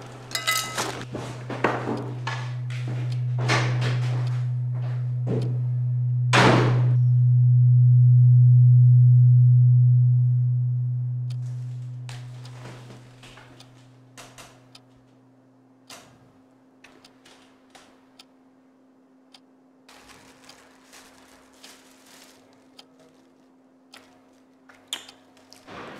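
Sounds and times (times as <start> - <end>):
low droning tone: 0.4 - 14.2.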